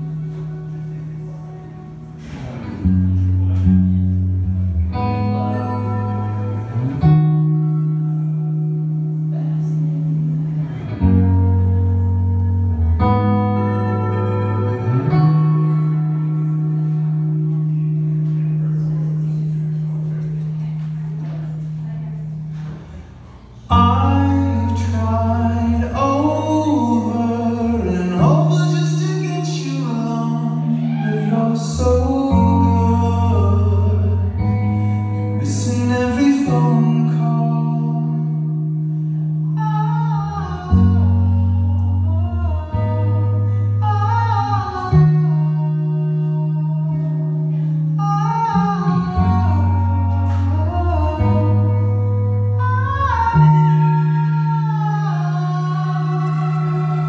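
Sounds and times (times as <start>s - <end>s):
electric guitar music: 0.0s - 57.0s
low bass line: 0.0s - 57.0s
person singing: 23.7s - 57.0s.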